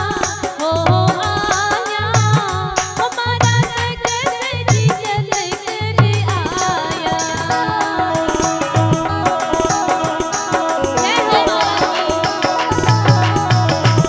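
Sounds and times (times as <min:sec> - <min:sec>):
woman singing into a microphone: 0:00.0 - 0:14.0
hand drum playing: 0:06.0 - 0:14.0.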